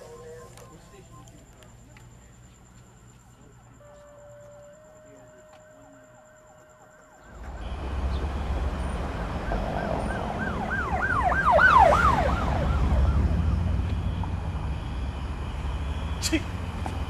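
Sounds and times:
street traffic rumble: 0.0 - 17.0
siren yelping: 9.2 - 14.0.

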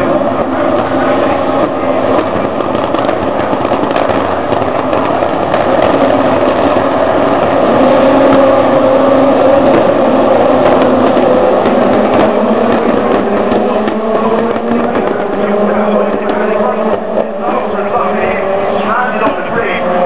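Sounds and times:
racing car engines at high revs: 0.0 - 20.0.

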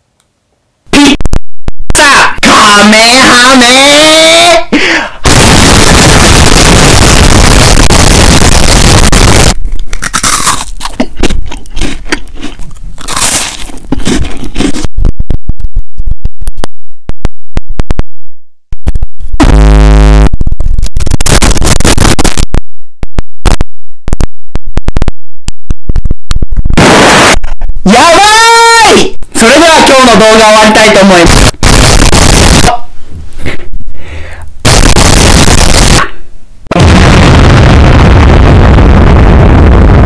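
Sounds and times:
distorted noise blast: 0.9 - 10.6, 18.9 - 33.8, 34.5 - 40.0.

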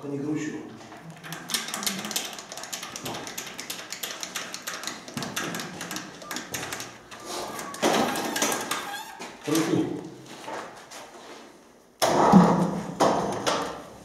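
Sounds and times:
metallic clicks and taps: 1.2 - 7.8.

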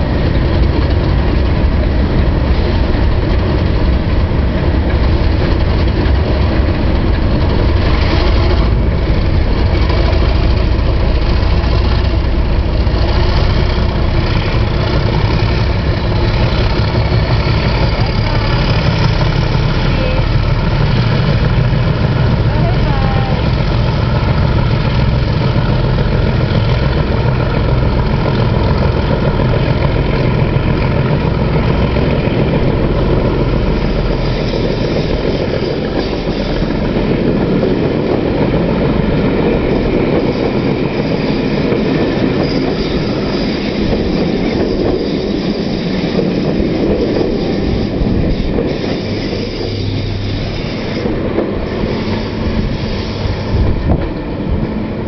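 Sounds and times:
diesel locomotive drone: 0.0 - 55.0
train wheels clattering and squealing: 0.0 - 55.0.

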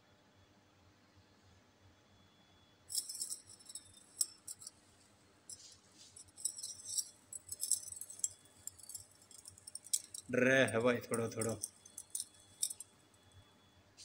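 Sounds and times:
metallic clinking and jingling: 2.9 - 4.8, 5.5 - 13.3.

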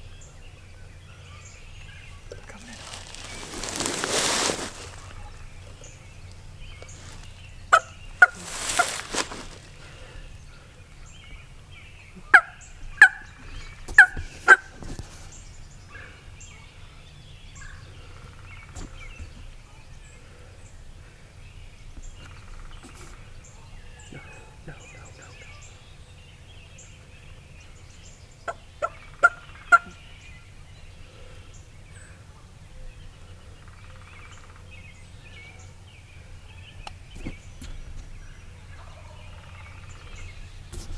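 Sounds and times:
turkeys gobbling: 7.7 - 9.5, 12.2 - 14.8, 28.5 - 30.0.

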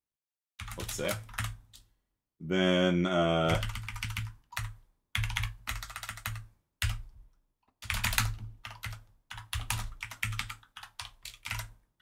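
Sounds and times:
rapid computer keyboard typing: 0.6 - 1.8, 3.4 - 11.8.

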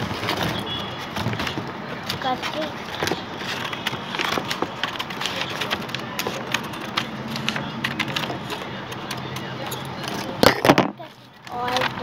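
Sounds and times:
paper rustling and crinkling: 0.0 - 8.8.

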